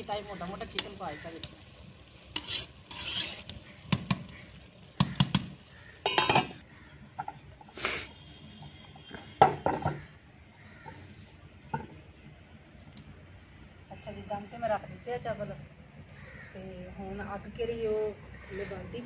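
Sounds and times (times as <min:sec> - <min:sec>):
ladle clanking on metal pot: 0:06.0 - 0:06.6.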